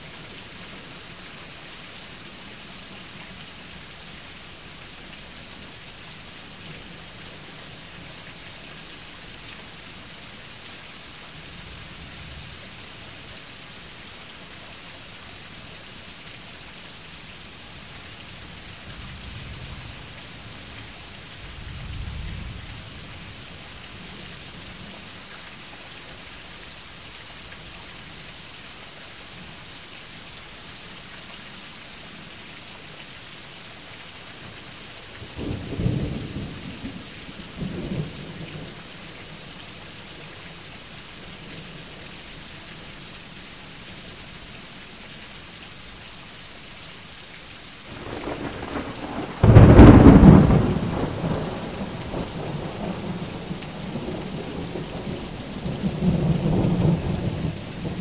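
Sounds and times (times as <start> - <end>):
steady rain: 0.0 - 58.0
thunder rumbling: 47.9 - 58.0
sharp thunderclap: 48.0 - 51.8.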